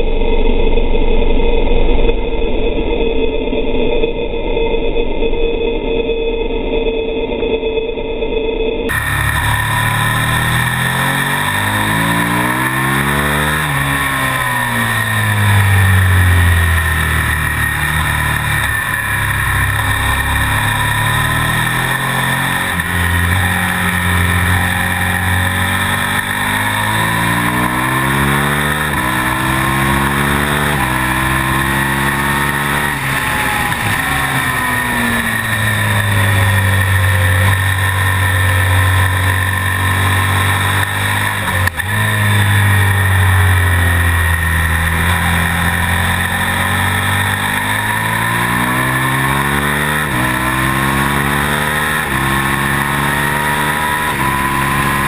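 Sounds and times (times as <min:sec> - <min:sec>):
motorcycle engine revving: 0:08.9 - 0:55.0.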